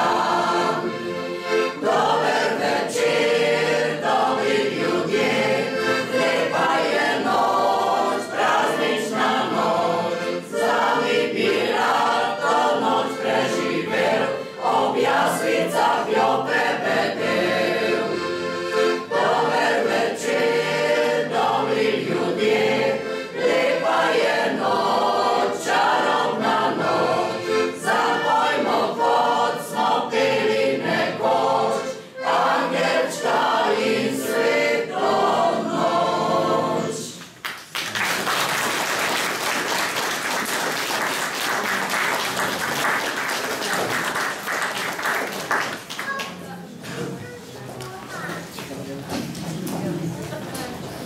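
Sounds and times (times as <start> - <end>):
choir singing: 0.0 - 37.2
piano accordion: 0.0 - 37.2
audience applauding: 37.4 - 46.6.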